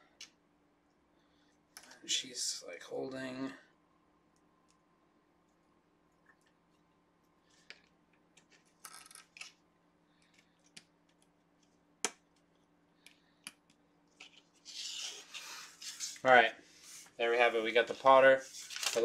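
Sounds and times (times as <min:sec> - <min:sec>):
scratchy handling sound: 0:14.1 - 0:17.1.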